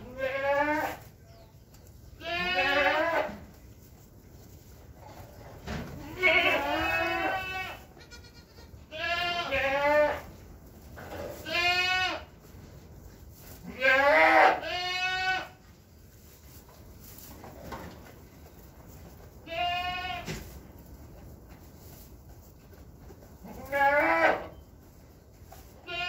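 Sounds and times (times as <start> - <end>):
goats bleating: 0.0 - 1.0, 2.2 - 3.4, 6.0 - 10.2, 11.3 - 12.3, 13.6 - 15.6, 19.4 - 20.4, 23.4 - 24.6, 25.8 - 26.0.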